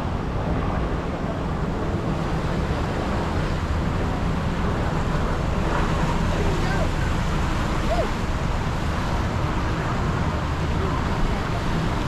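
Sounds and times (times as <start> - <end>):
wind on microphone: 0.0 - 12.0
water rushing down slides: 5.0 - 12.0.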